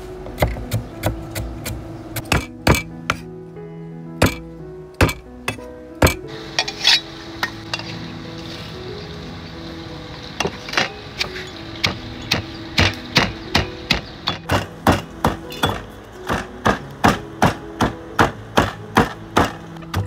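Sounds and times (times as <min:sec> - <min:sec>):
pestle pounding in stone mortar: 0:00.4 - 0:03.2, 0:04.2 - 0:04.4, 0:05.0 - 0:06.2, 0:11.8 - 0:20.0.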